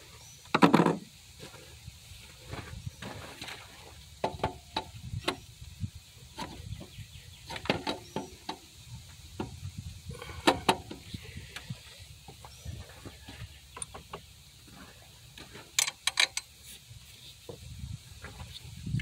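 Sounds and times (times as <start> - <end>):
metallic clicks and knocks: 15.7 - 16.5.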